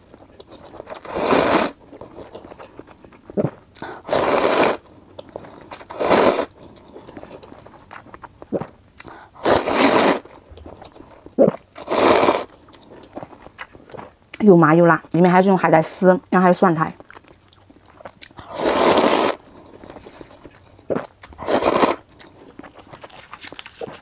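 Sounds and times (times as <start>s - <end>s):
soft chewing: 0.0s - 4.1s, 4.8s - 9.4s, 10.2s - 15.2s, 16.8s - 18.6s, 19.3s - 24.0s
person slurping noodles: 0.8s - 2.6s, 3.4s - 4.8s, 5.4s - 6.6s, 9.3s - 12.5s, 18.4s - 22.1s.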